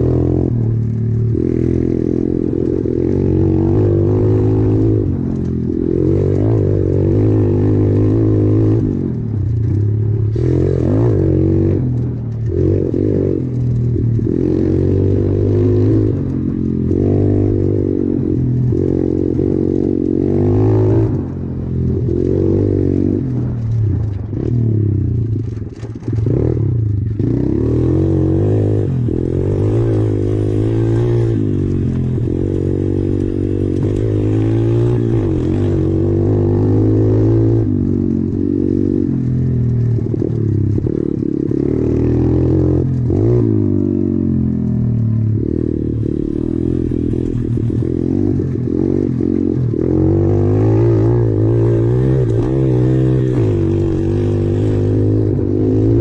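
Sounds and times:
motorbike engine revving: 0:00.0 - 0:56.0.

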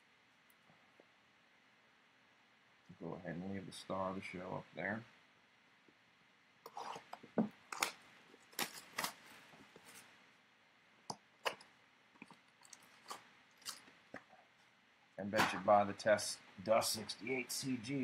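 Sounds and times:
foil wrappers crinkling: 0:07.7 - 0:10.1.

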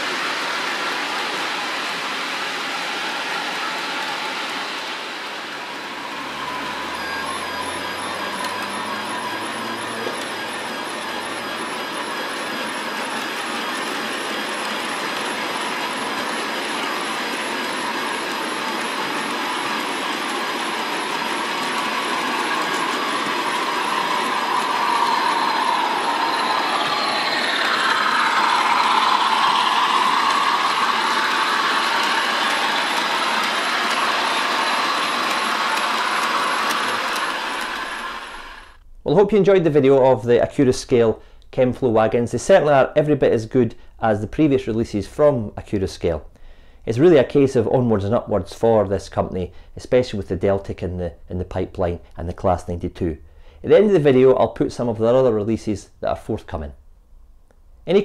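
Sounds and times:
model train wheels rumbling on track: 0:00.0 - 0:38.8
wavering tone: 0:02.7 - 0:38.8.

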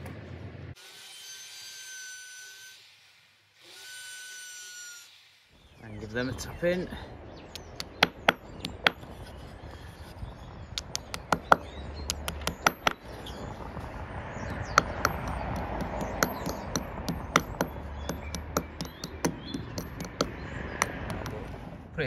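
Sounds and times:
hammer tapping plastic plugs: 0:07.5 - 0:09.0, 0:10.8 - 0:13.0, 0:14.7 - 0:21.5.

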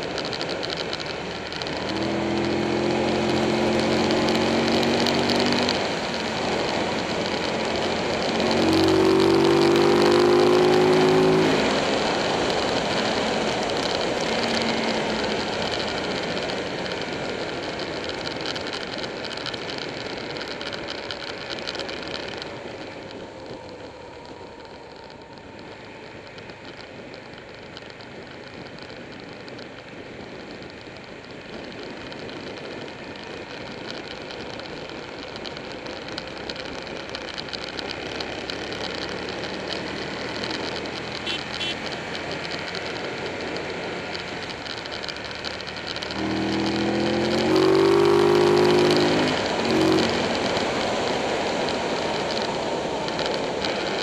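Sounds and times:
motorcycle engine running: 0:00.0 - 0:54.0
road noise: 0:00.0 - 0:54.0.

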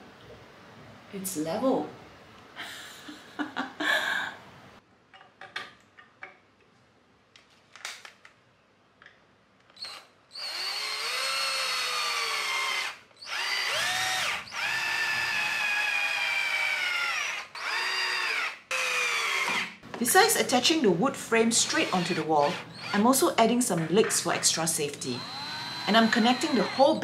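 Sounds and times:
cordless drill driving screw: 0:09.8 - 0:19.7, 0:21.6 - 0:23.0, 0:25.2 - 0:27.0.

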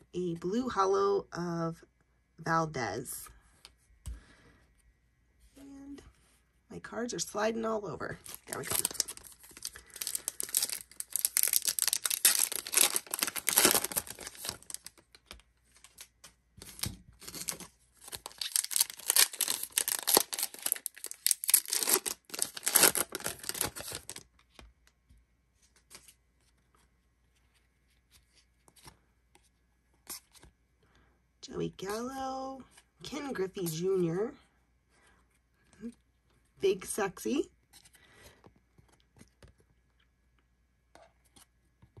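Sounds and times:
foil wrapper tearing and crinkling: 0:08.2 - 0:24.3.

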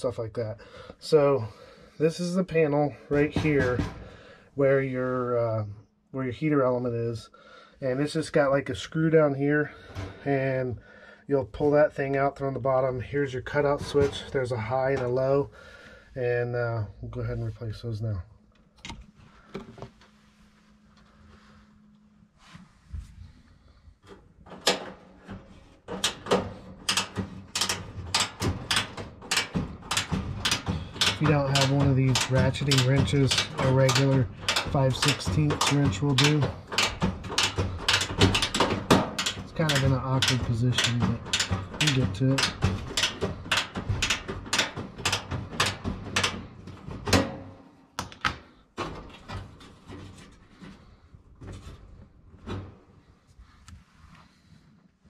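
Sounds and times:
knocks: 0:03.1 - 0:04.2, 0:25.9 - 0:49.0
ratcheting wrench clicking: 0:26.0 - 0:46.4.

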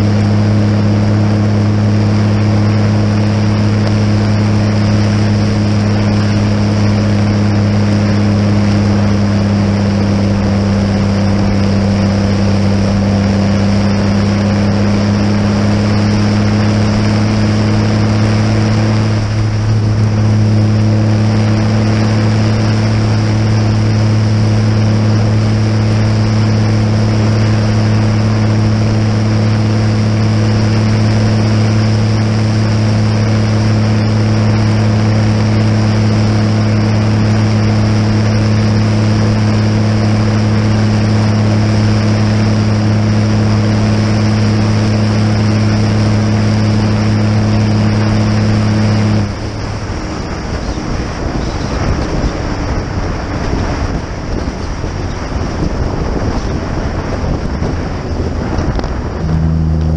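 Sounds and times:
tractor engine droning: 0:00.0 - 0:59.9.

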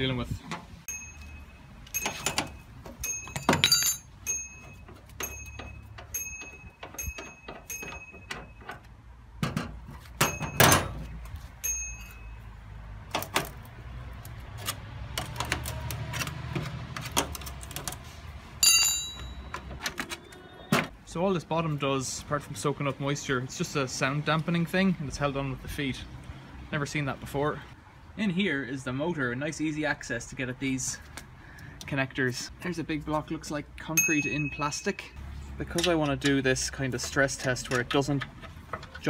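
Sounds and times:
metal spanner clinking: 0:00.9 - 0:08.9, 0:10.2 - 0:11.0, 0:18.6 - 0:19.8, 0:34.0 - 0:39.0
bright metallic clang: 0:10.2 - 0:11.0.

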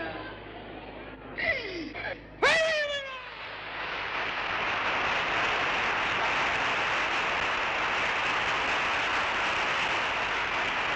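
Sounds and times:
audience applauding: 0:03.6 - 0:10.9.

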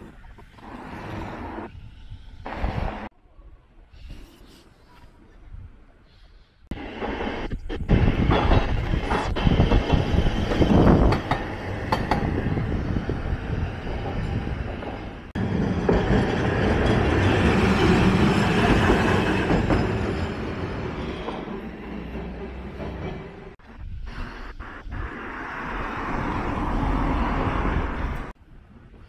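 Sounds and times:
streetcar wheels rumbling on rails: 0:06.7 - 0:28.9.

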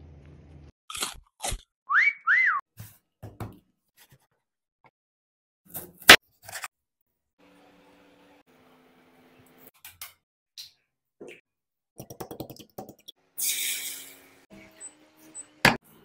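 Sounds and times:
whistle-like tones: 0:01.9 - 0:02.6.

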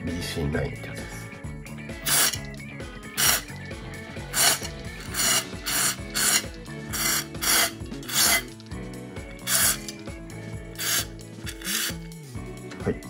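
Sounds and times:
aerosol spray hissing: 0:02.0 - 0:02.4, 0:03.2 - 0:03.5, 0:04.3 - 0:08.5, 0:09.4 - 0:09.9, 0:10.8 - 0:12.0.

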